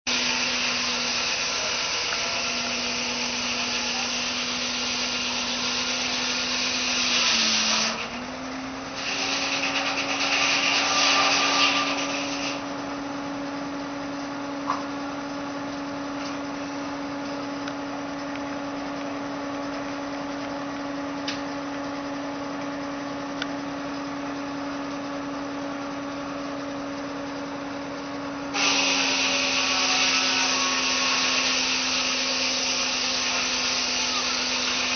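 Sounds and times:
loud rasping noise: 0:00.1 - 0:08.2, 0:08.9 - 0:12.7, 0:28.5 - 0:34.9
sawmill humming: 0:00.1 - 0:34.9.

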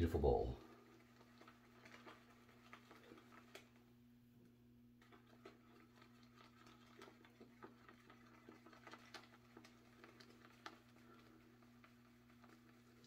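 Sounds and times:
shaving brush wet clicks: 0:05.0 - 0:13.0.

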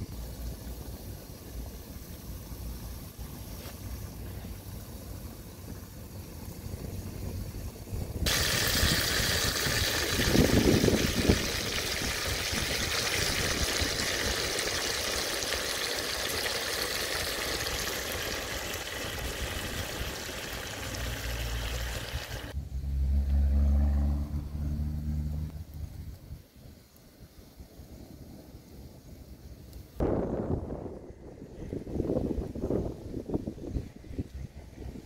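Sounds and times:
fish and peppers sizzling: 0:00.0 - 0:24.2
low hum: 0:19.0 - 0:26.4.

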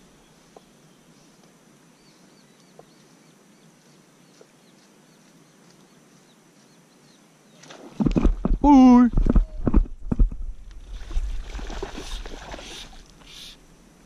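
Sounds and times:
distant birds chirping: 0:00.0 - 0:10.1.

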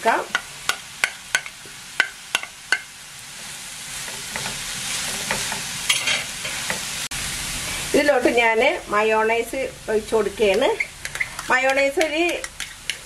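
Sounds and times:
filling sizzling in a frying pan: 0:00.0 - 0:13.0
spatula tapping a plate: 0:00.3 - 0:02.9, 0:11.0 - 0:13.0.

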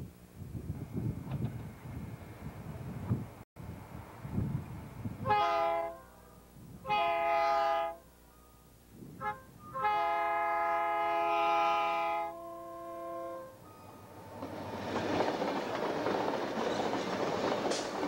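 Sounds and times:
locomotive air horn blasts: 0:05.2 - 0:14.2.

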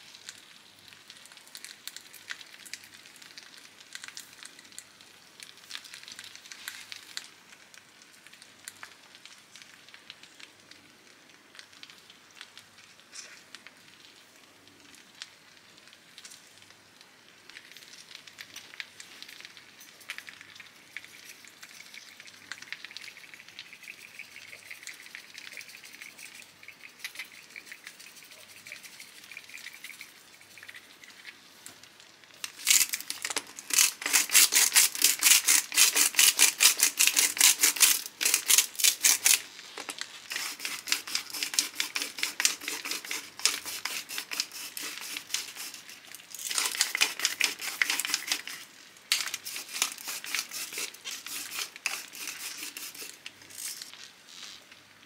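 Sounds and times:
meat and potatoes sizzling: 0:00.0 - 0:55.0
salt grinder rattling: 0:32.5 - 0:39.4, 0:40.3 - 0:53.9.

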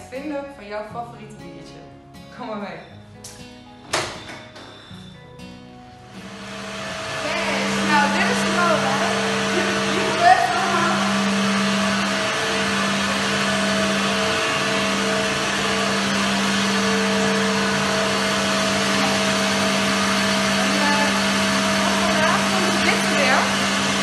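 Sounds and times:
machinery whirring and humming: 0:06.2 - 0:24.0.

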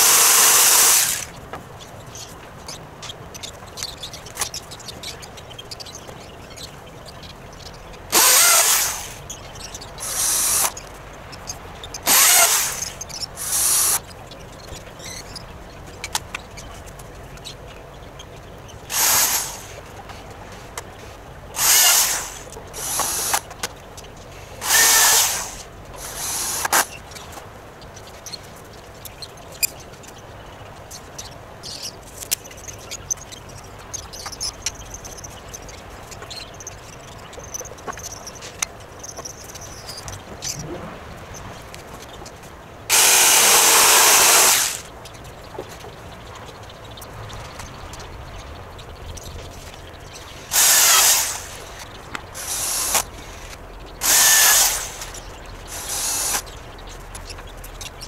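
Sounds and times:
cordless drill running in bursts: 0:00.0 - 0:01.4, 0:08.1 - 0:09.2, 0:10.0 - 0:10.8, 0:12.0 - 0:14.0, 0:18.9 - 0:19.8, 0:21.6 - 0:23.5, 0:24.6 - 0:26.9, 0:42.9 - 0:44.9, 0:50.4 - 0:51.8, 0:52.4 - 0:56.4.

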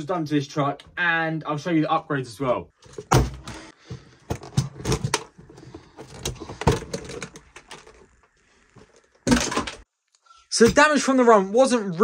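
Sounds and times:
toy truck parts clattering: 0:04.3 - 0:08.3.

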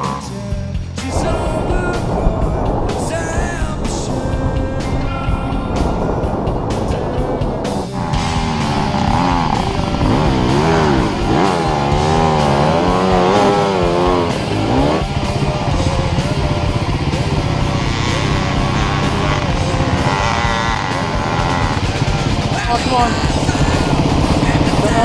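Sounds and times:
background music: 0:00.0 - 0:25.0
dirt bike engine revving: 0:00.0 - 0:25.0.

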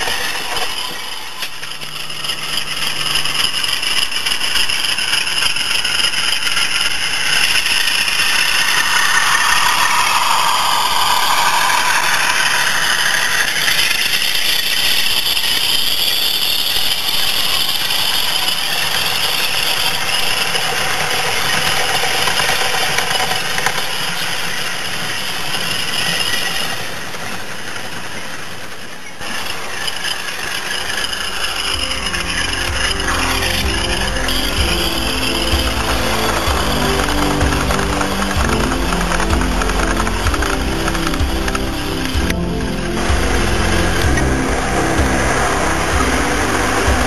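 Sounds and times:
model train wheels rattling: 0:00.0 - 0:42.3.

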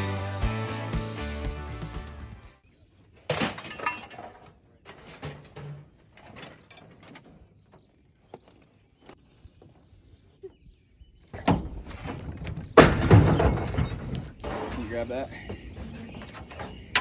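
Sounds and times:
background music: 0:00.0 - 0:02.6
scrap metal clanking and rattling: 0:03.2 - 0:08.1, 0:11.4 - 0:17.0.

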